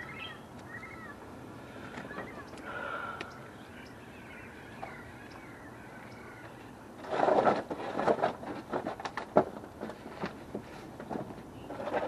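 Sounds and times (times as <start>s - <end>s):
scraping rustle: 6.4s - 12.0s.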